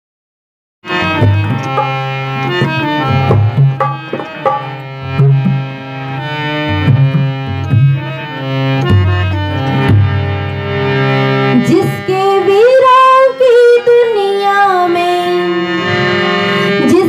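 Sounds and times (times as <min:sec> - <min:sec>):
harmonium melody: 0:00.8 - 0:17.0
tabla drumming: 0:00.9 - 0:10.4.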